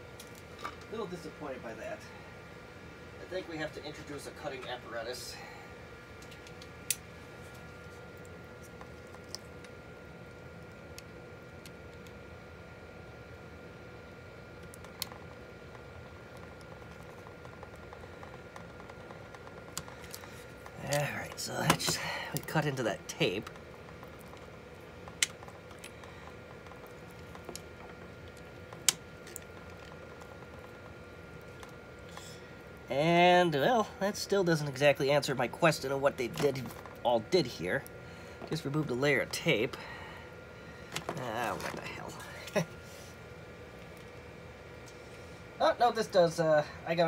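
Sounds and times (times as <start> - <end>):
faint hum: 0.0 - 47.0
tape crinkling and scratching: 6.2 - 12.2, 14.6 - 32.4, 40.9 - 42.9.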